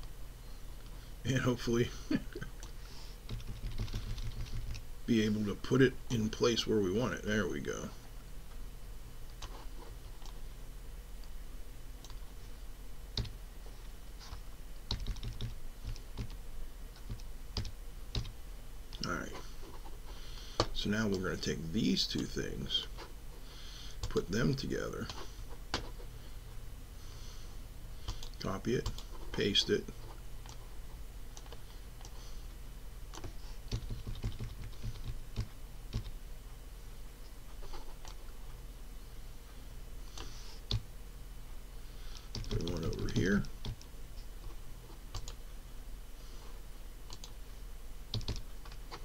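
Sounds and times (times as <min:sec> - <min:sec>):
low steady hum: 0:00.0 - 0:49.0
keyboard keys clicking: 0:03.3 - 0:04.8, 0:14.9 - 0:16.4, 0:33.1 - 0:36.1, 0:48.1 - 0:48.8
keyboard and mouse clicking: 0:33.1 - 0:36.1.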